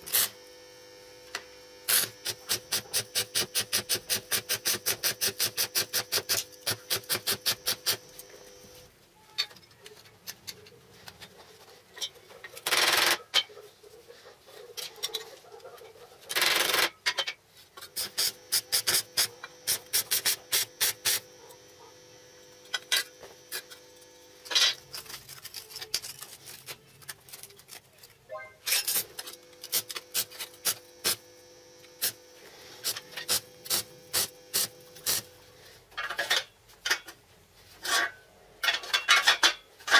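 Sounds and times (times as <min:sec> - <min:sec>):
welding arc crackling: 0:00.0 - 0:00.4, 0:01.3 - 0:08.9, 0:17.9 - 0:26.2, 0:28.7 - 0:35.3.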